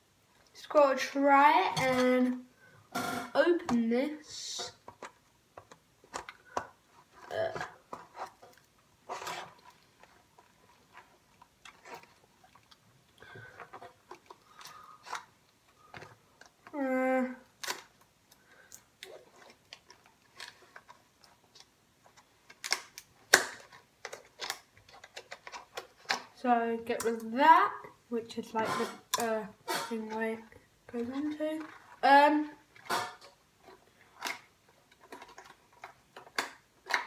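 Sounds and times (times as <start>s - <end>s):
plastic packaging crackling: 4.6s - 27.4s, 28.6s - 37.0s
plastic snapping: 17.6s - 26.3s, 32.8s - 37.0s
scissors snipping plastic: 22.5s - 26.3s.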